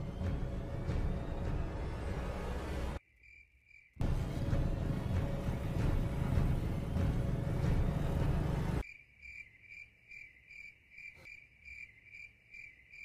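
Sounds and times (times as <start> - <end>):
crickets chirping: 3.0 - 4.0, 8.8 - 13.0.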